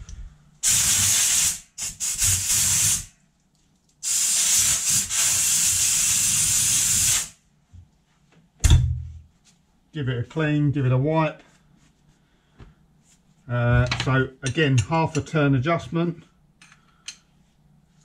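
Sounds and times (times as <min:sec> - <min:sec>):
compressed air blow gun blasting: 0:00.6 - 0:03.1, 0:04.0 - 0:07.3.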